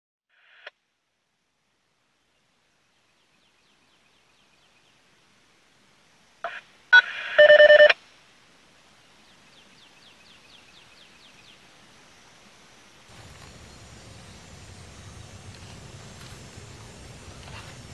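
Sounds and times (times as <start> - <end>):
faint electronic chirps: 6.4 - 8.0
rapid pitched beeps: 6.5 - 7.9.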